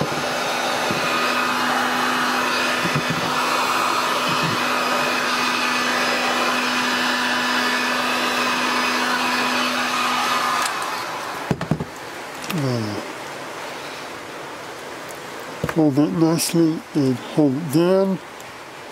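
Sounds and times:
heat gun fan blowing: 0:00.0 - 0:18.9.

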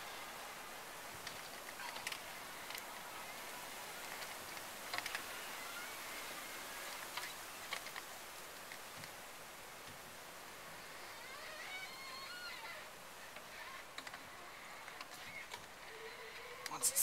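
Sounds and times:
steady hiss: 0:00.0 - 0:17.0
faint squeaks: 0:01.3 - 0:08.0, 0:10.7 - 0:17.0.

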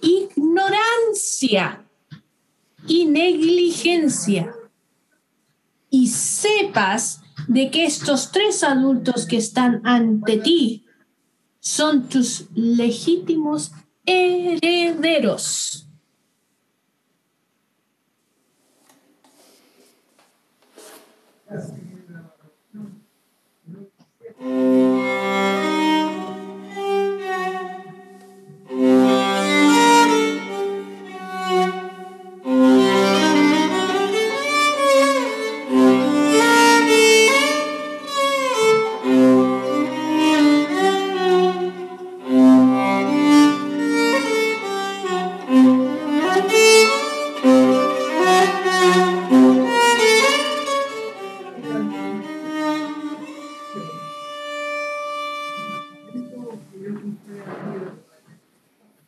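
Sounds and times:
solo violin melody: 0:24.4 - 0:56.6.

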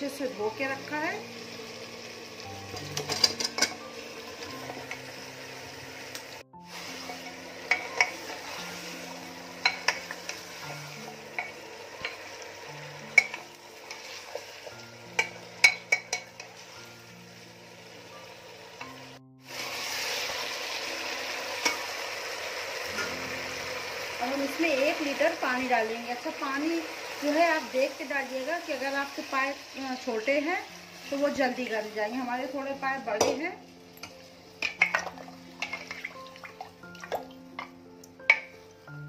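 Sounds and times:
frying hiss: 0:00.0 - 0:37.2
spoon clinking and scraping pot: 0:02.7 - 0:03.9, 0:07.0 - 0:08.9, 0:09.6 - 0:10.6, 0:11.3 - 0:12.4, 0:13.1 - 0:16.8, 0:34.0 - 0:36.3.

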